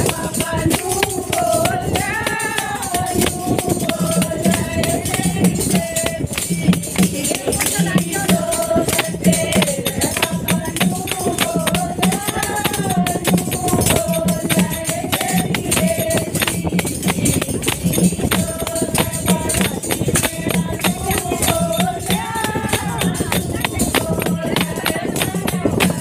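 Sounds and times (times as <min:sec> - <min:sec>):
hand clappers: 0:00.0 - 0:26.0
person singing devotional song: 0:00.0 - 0:26.0.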